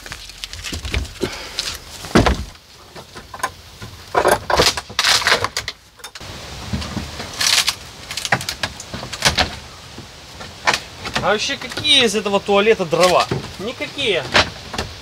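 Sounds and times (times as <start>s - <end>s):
wooden boards cracking and scraping: 0.0s - 15.0s
heavy thump: 2.0s - 2.6s.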